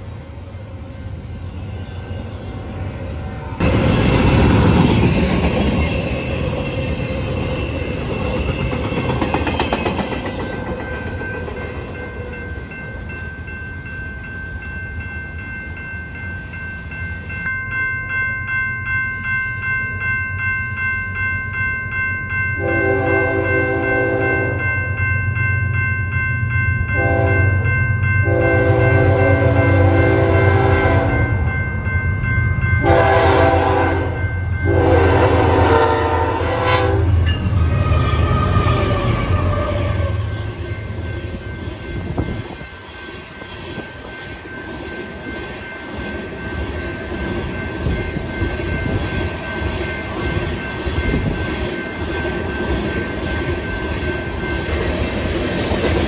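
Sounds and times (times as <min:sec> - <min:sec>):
crossing bell ringing: 0:00.0 - 0:56.0
freight train rumbling past: 0:00.0 - 0:56.0
train horn blasts: 0:22.6 - 0:24.6, 0:27.0 - 0:27.5, 0:28.3 - 0:31.3, 0:32.8 - 0:40.4.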